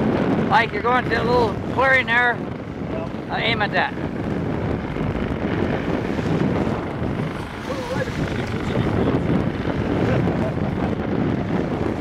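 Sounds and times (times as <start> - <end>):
water washing around boat: 0.0 - 12.0
wind buffeting microphone: 0.0 - 12.0.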